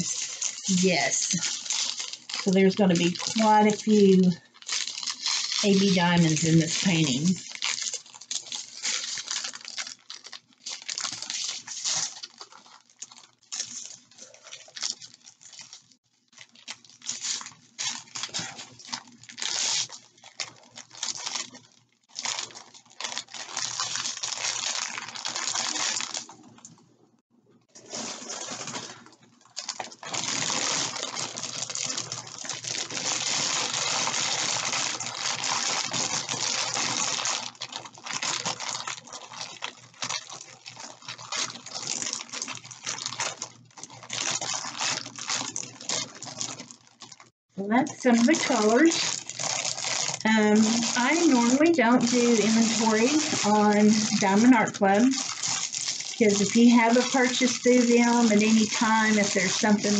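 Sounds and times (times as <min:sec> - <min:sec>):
plastic bags rattling and crinkling: 0:00.0 - 0:26.8, 0:27.7 - 0:59.9.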